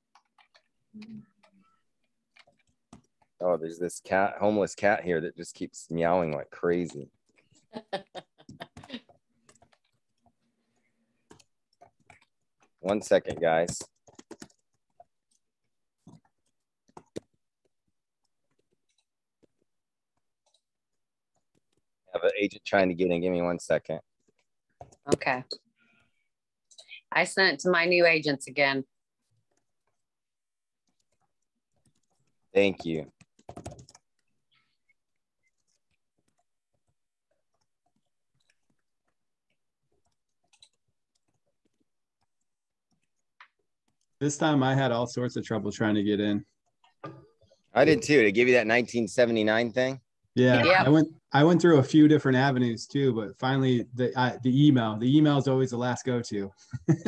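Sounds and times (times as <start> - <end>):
keyboard and mouse clicks: 0.1 - 3.4, 8.4 - 17.7, 30.8 - 44.2.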